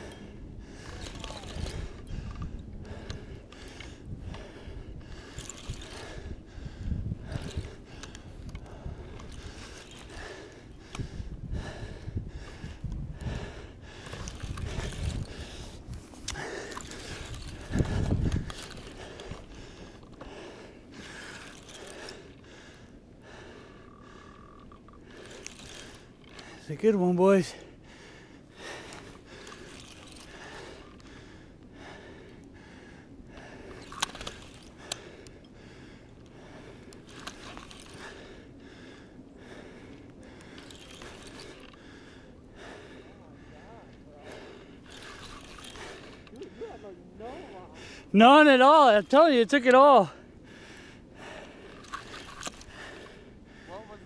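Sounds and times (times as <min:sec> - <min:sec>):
fishing reel clicking: 0:00.8 - 0:04.5, 0:05.1 - 0:06.4, 0:07.2 - 0:11.1, 0:13.2 - 0:22.4, 0:23.4 - 0:26.6, 0:28.6 - 0:31.1, 0:33.6 - 0:35.4, 0:36.8 - 0:38.3, 0:40.4 - 0:41.9, 0:44.2 - 0:46.6, 0:51.3 - 0:53.2.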